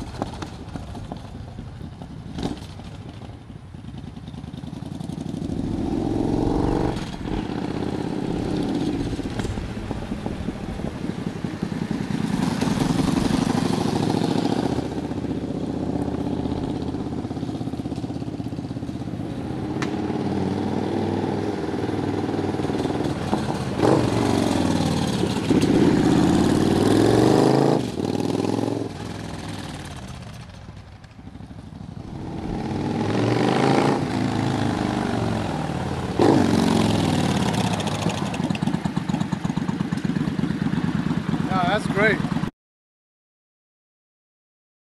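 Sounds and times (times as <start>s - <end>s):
motorcycle engine passing: 0.0s - 42.5s.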